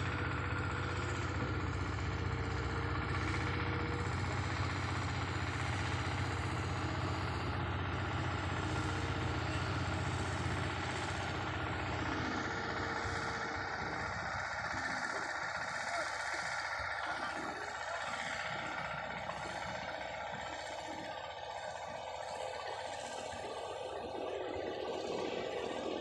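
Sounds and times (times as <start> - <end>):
diesel engine humming: 0.0 - 26.0.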